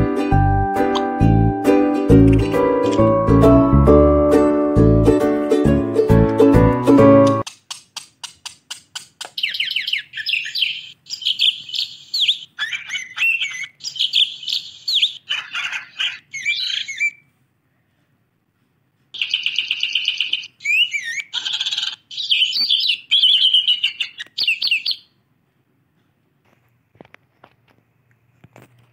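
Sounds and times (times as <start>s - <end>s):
budgerigar chirping and warbling: 9.0s - 17.2s, 19.2s - 25.1s.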